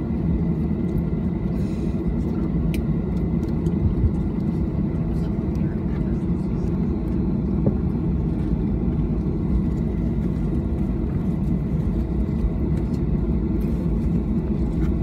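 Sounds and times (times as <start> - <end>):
airplane cabin low rumble: 0.0 - 15.0.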